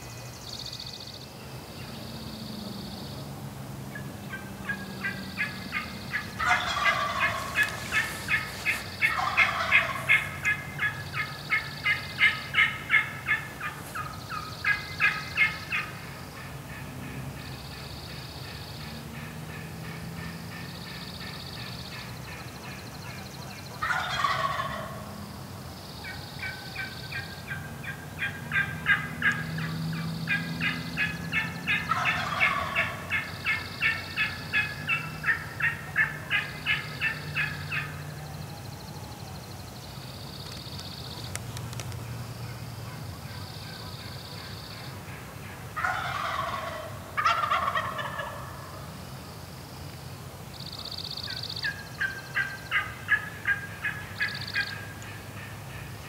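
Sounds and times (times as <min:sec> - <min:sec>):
turkey gobbling: 0:03.9 - 0:16.8, 0:19.2 - 0:25.0, 0:26.0 - 0:38.4, 0:42.9 - 0:48.8, 0:51.3 - 0:56.0.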